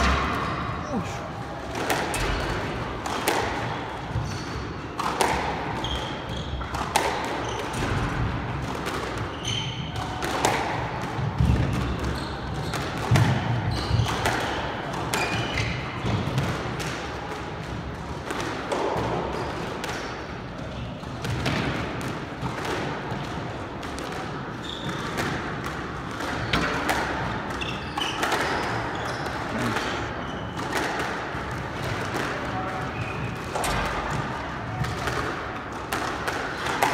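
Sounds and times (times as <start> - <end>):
squash ball hitting racquet and walls: 0.0 - 36.9
shoe squeaks: 5.8 - 6.7, 9.3 - 10.0, 12.0 - 12.8, 24.6 - 25.1, 27.6 - 30.6.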